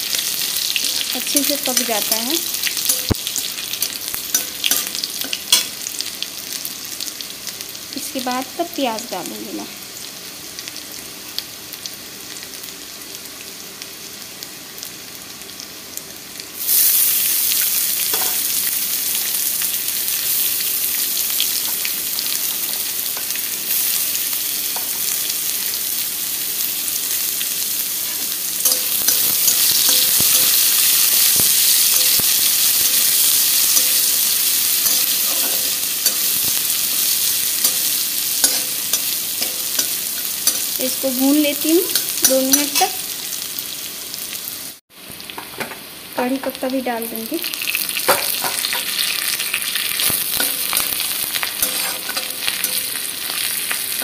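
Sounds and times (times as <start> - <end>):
food sizzling in oil: 0.0 - 54.0
metal spatula scraping pan: 34.7 - 36.4, 37.6 - 40.8, 50.3 - 54.0.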